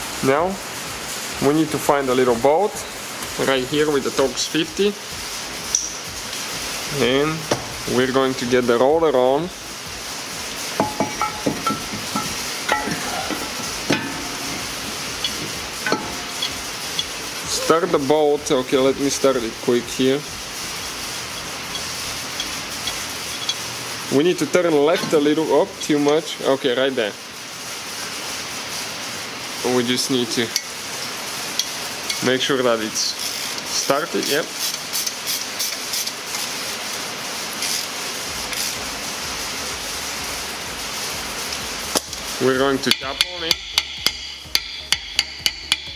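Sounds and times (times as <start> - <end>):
steady hiss: 0.0 - 45.9
rotor scraping against hub: 1.0 - 45.9
light ratchet clicks: 5.7 - 6.0, 20.8 - 23.6, 33.2 - 33.6, 42.9 - 45.9
metallic clinks of brake rotor: 21.4 - 23.6.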